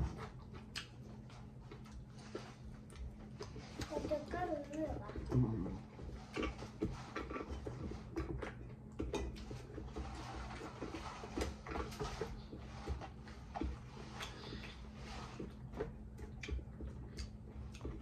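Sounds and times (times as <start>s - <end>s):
low steady hum: 0.0s - 18.0s
fingers working rice on a plate: 0.2s - 18.0s
chewing and mouth smacks: 0.3s - 3.9s, 15.4s - 18.0s.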